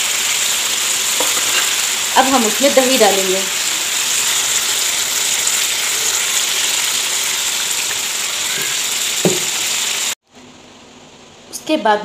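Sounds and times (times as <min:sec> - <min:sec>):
chicken sizzling in hot oil: 0:00.0 - 0:10.2.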